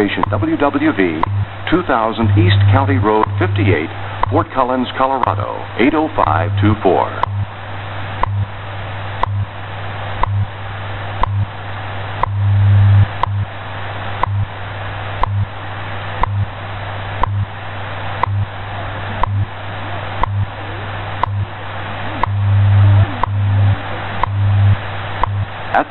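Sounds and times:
radio time signal ticks: 0.0 - 7.5, 8.2 - 8.5, 9.2 - 9.5, 10.2 - 10.5, 11.2 - 11.5, 12.2 - 12.4, 13.0 - 13.5, 14.2 - 14.5, 15.2 - 15.5, 16.2 - 16.6, 17.2 - 17.6, 18.2 - 18.5, 19.2 - 19.6, 20.2 - 21.6, 22.2 - 25.5
shortwave static: 0.0 - 25.9
steady low hum: 0.0 - 25.9.

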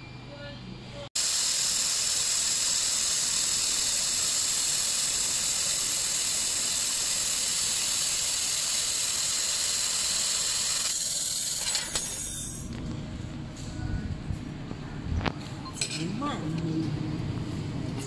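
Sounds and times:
laser welder hissing: 1.2 - 12.7.

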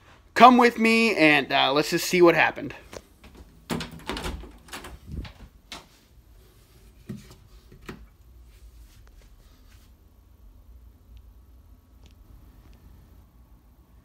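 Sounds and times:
door knob clicks and knocks: 3.3 - 5.4.

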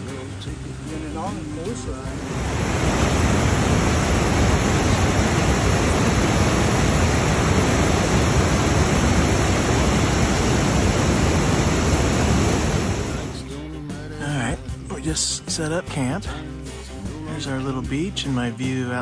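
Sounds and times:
rapids rushing over rocks: 1.2 - 13.4.

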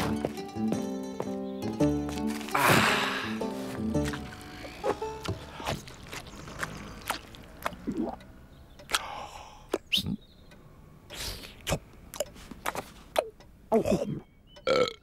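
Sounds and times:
chewing and lip-smacking: 4.0 - 8.2.

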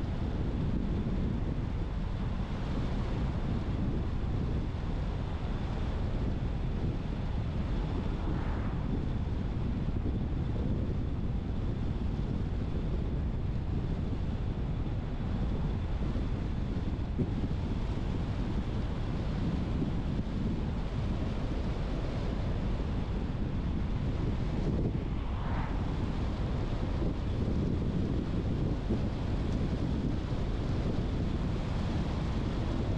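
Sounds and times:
wind noise: 0.0 - 32.9
car road noise: 6.8 - 10.4, 20.8 - 32.9.

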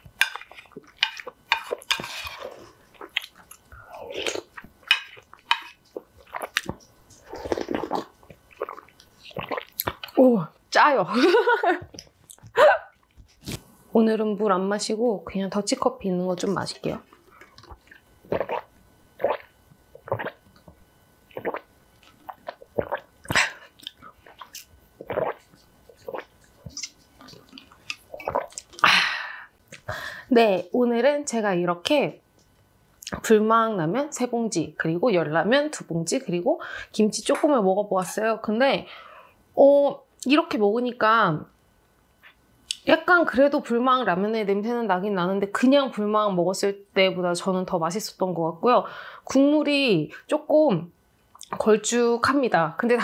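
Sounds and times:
slurping broth: 0.3 - 10.1, 17.3 - 20.4, 21.3 - 28.9
chewing and mouth noises: 0.3 - 10.2, 21.3 - 28.9
person gulping and swallowing: 2.4 - 5.3, 5.9 - 10.2, 17.3 - 29.9.

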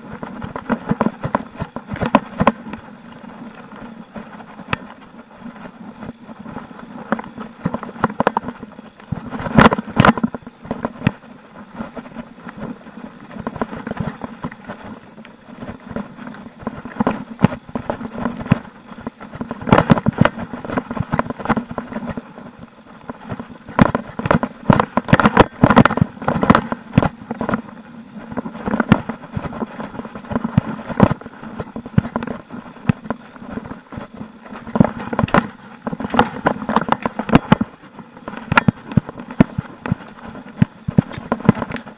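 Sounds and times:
bike tyres rumbling on dirt: 0.0 - 41.9
sharp knocks over bumps: 23.1 - 27.7, 28.3 - 41.9.

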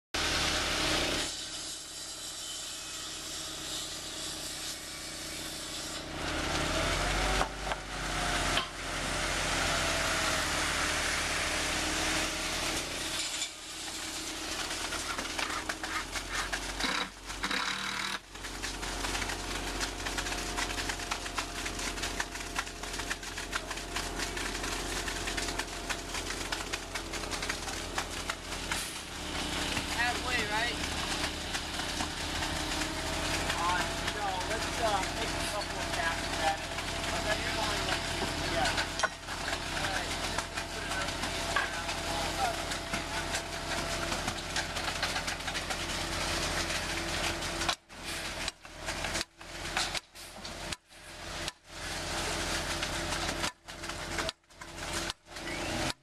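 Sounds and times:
wet concrete pouring down chute: 0.2 - 56.0
truck engine and turning drum: 13.8 - 50.8.

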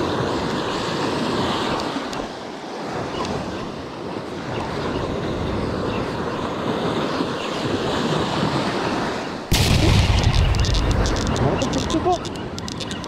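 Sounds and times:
waves washing up a beach: 0.0 - 13.0
quick clicks: 10.3 - 13.0.

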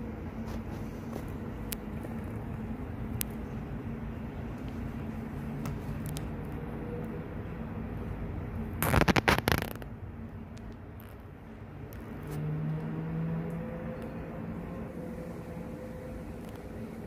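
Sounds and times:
distant city traffic hum: 0.0 - 17.0
rustling and scraping: 0.4 - 2.5.

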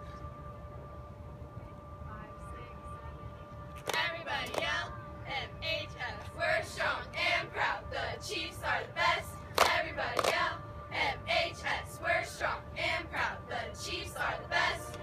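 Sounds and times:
hand claps: 3.8 - 4.7, 9.6 - 10.4.

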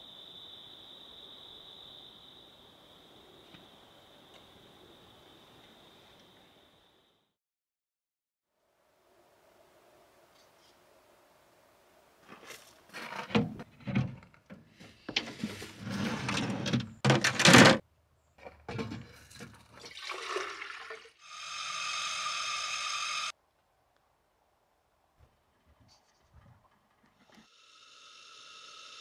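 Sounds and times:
camp kitchen gear clattering: 13.1 - 17.8, 18.4 - 20.0
water pouring from kettle: 19.4 - 21.2.

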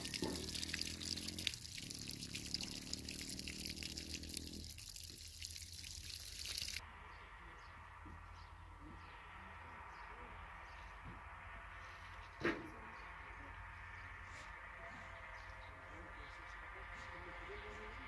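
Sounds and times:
trickling dripping water: 0.0 - 6.8.

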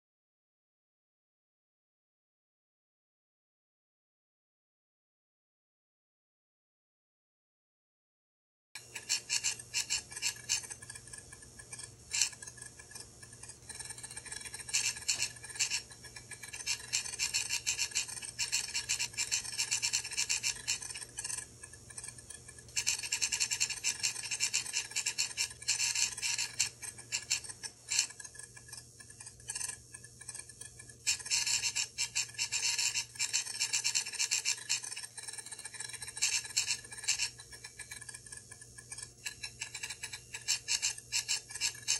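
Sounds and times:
faint steady hum: 8.8 - 41.9
hard disk clicking: 8.8 - 41.9.

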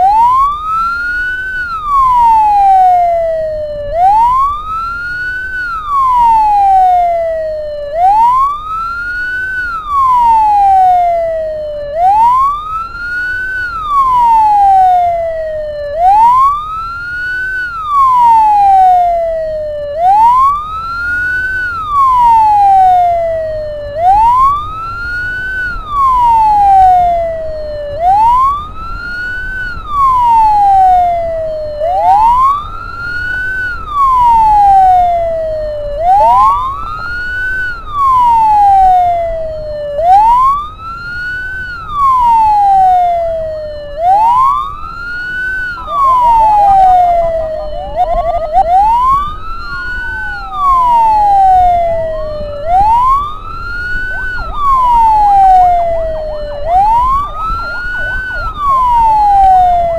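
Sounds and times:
ambulance siren wailing: 0.0 - 59.9
engine and road noise: 0.0 - 59.9.

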